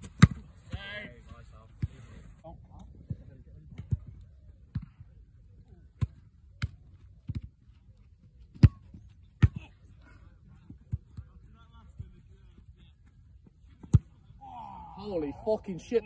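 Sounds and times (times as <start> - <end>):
football kicks sharp thuds: 0.0 - 2.1, 6.0 - 7.6, 8.5 - 9.8, 13.7 - 14.2.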